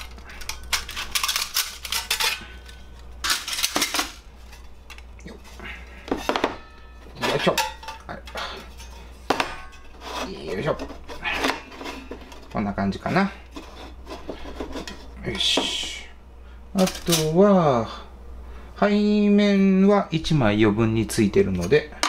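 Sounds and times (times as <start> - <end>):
metal panels clinking and clattering: 0.0 - 5.0.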